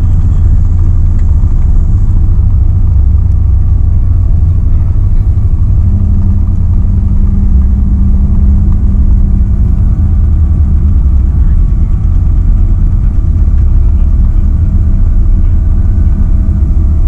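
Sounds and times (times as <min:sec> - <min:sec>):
aircraft cabin rumble: 0:00.0 - 0:17.0
low hum: 0:00.0 - 0:17.0.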